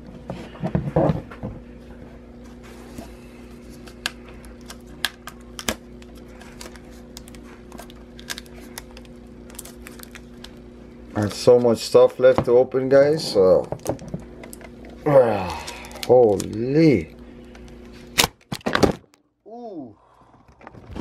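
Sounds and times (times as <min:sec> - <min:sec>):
faint steady hum: 0:00.0 - 0:21.0
fingernails picking shrink wrap: 0:03.8 - 0:10.6.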